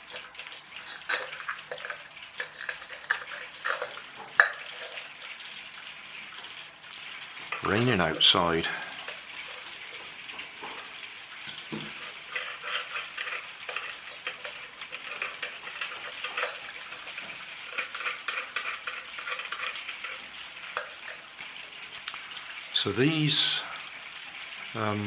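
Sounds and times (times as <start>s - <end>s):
clicks and rattles of wires: 0.0s - 5.4s, 9.0s - 21.2s
rain hiss: 0.0s - 25.0s.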